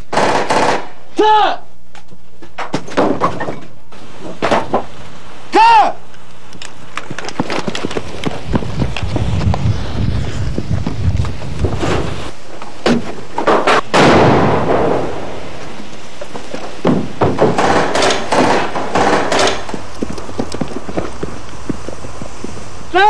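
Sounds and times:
sharp bangs: 13.7s - 19.8s
loud blast: 13.9s - 15.9s.

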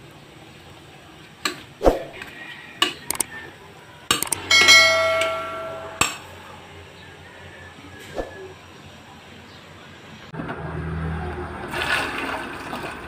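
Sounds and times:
quick clicks: 3.1s - 3.3s, 4.1s - 4.4s
bell-like ding: 4.2s - 6.3s.

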